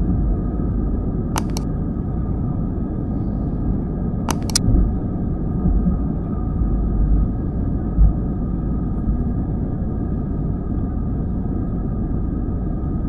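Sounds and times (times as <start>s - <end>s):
airplane engine and runway rumble: 0.0s - 13.0s
mouse clicks: 1.4s - 1.6s, 4.3s - 4.6s.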